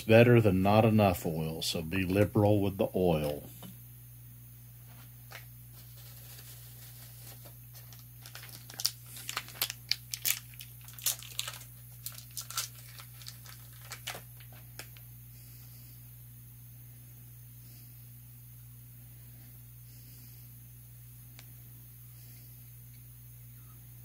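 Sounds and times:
steady low hum: 0:00.0 - 0:24.0
clicks and crinkling rustles: 0:04.9 - 0:15.1.

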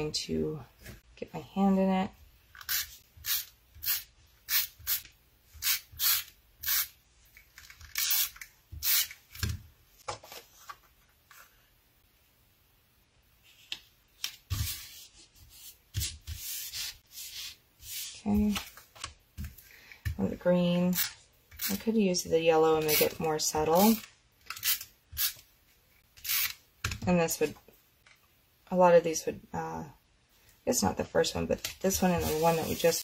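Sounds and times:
rubbing and scraping strokes: 0:32.0 - 0:33.0.

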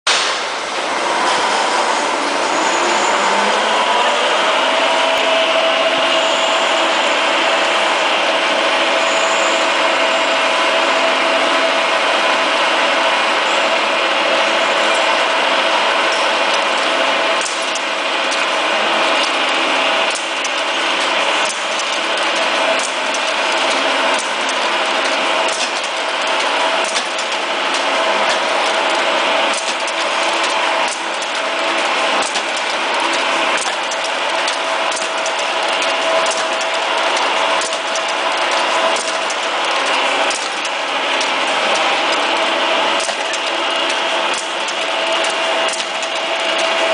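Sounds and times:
machine whirring and whining: 0:00.1 - 0:46.9
sharp machine clicks: 0:16.0 - 0:46.9.

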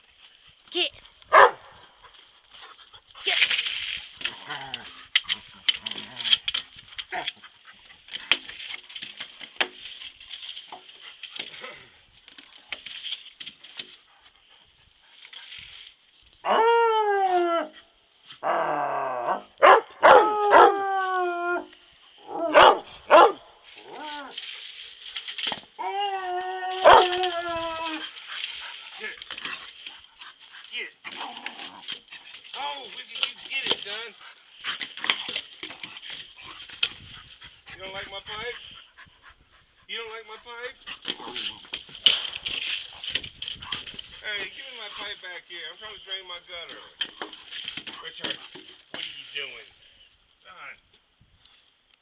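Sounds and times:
dog barking: 0:01.3 - 0:01.7, 0:19.6 - 0:20.7, 0:22.5 - 0:23.4
light clicks and rustles: 0:23.6 - 0:25.8.

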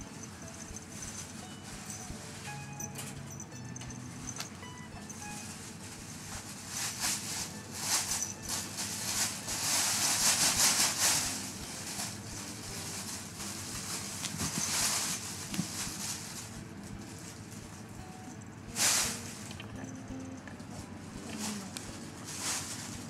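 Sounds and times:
cat scrambling on floor mat: 0:13.8 - 0:16.4.

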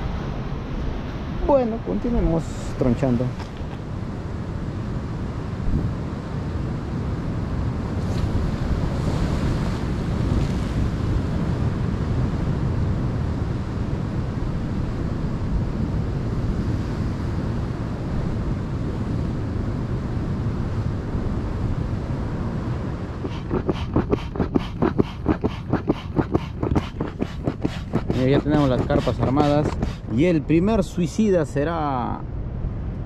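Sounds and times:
wind buffeting microphone: 0:22.8 - 0:31.0
rhythmic strokes: 0:23.2 - 0:30.2.

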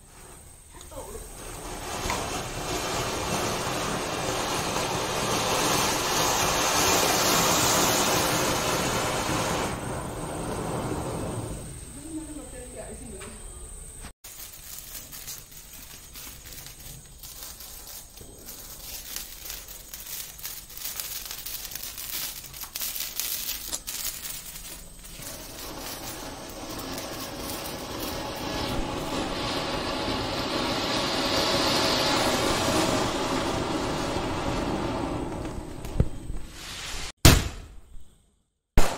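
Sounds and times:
fountain firework hissing: 0:00.0 - 0:13.1, 0:14.2 - 0:37.2
fireworks fizzing and crackling: 0:00.0 - 0:13.2, 0:14.0 - 0:37.8.

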